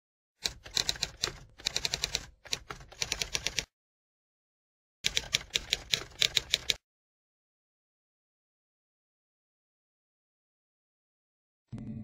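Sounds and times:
typewriter keys clacking: 0:05.1 - 0:06.8.

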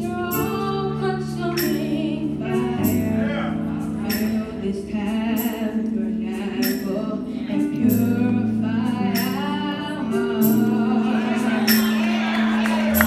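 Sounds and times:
sustained low instrumental notes: 0:01.9 - 0:08.8
choir singing: 0:06.1 - 0:13.0.

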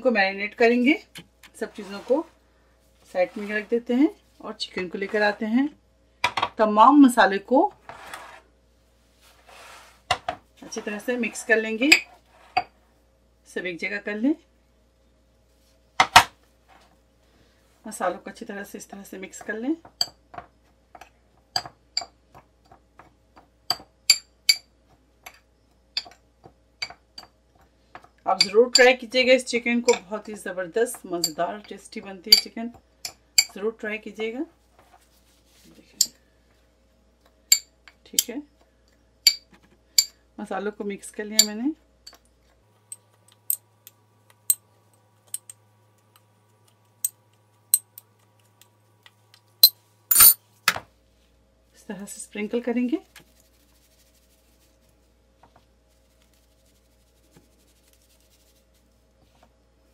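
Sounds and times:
spoon scraping dish: 0:01.6 - 0:02.3
metal spoon clinking on ceramic dish: 0:49.6 - 0:50.4.

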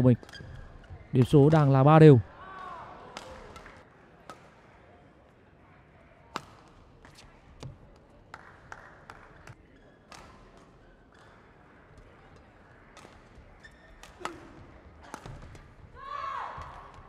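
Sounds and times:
rackets striking shuttlecock: 0:06.3 - 0:08.4, 0:09.1 - 0:11.5, 0:12.9 - 0:15.7.

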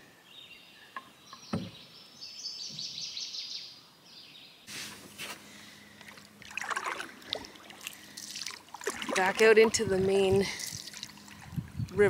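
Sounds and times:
songbird chirping: 0:00.0 - 0:04.8
thump: 0:01.5 - 0:01.8.

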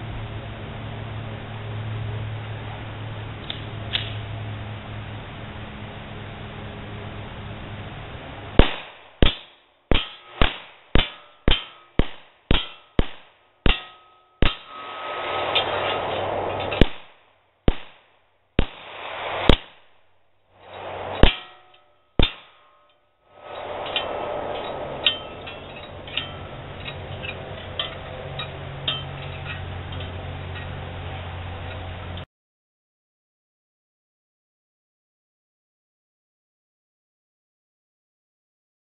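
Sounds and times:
metallic clang of steel targets: 0:08.6 - 0:20.0, 0:20.6 - 0:30.8
pistol shots: 0:08.6 - 0:20.0, 0:20.8 - 0:22.7.

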